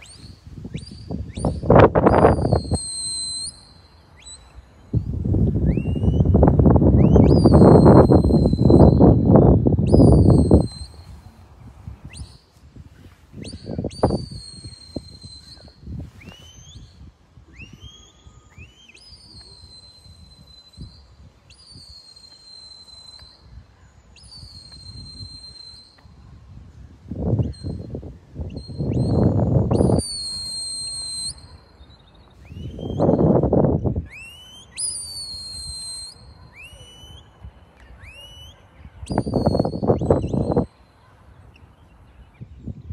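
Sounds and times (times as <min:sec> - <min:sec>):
high whistled commands: 0:00.0 - 0:11.2, 0:12.0 - 0:12.6, 0:13.3 - 0:26.2, 0:27.3 - 0:42.8.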